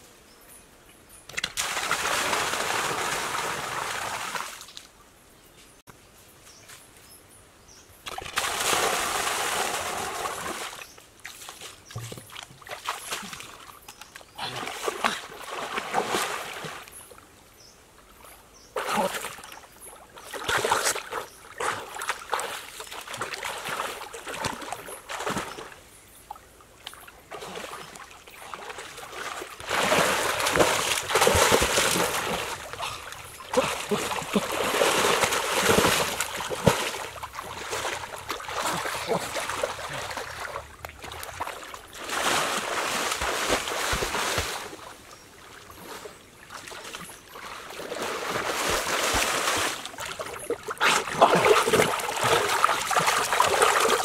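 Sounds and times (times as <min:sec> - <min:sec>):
swimmers splashing water: 0:28.7 - 0:44.7.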